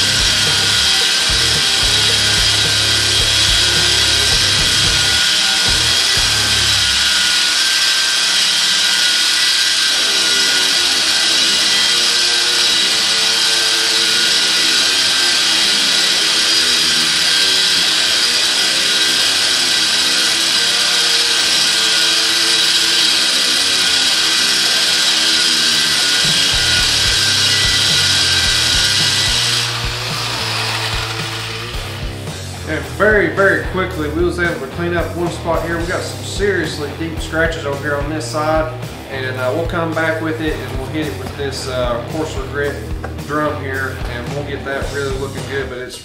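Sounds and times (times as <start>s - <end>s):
motor whine: 0.0s - 45.6s
drum sander grinding on metal: 0.0s - 46.0s
faint background music: 26.1s - 46.0s.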